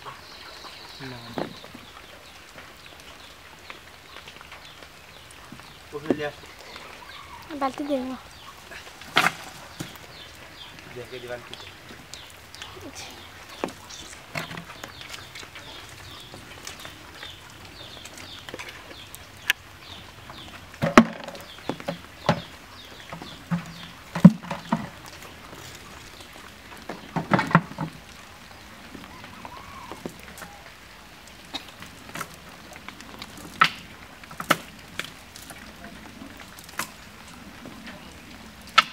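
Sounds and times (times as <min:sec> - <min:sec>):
fish knocking on wooden slats: 0:20.8 - 0:22.5.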